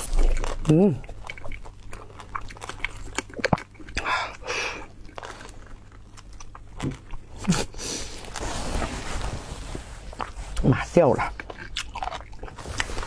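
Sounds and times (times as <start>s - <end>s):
person chewing: 0.0s - 9.0s, 10.0s - 13.0s.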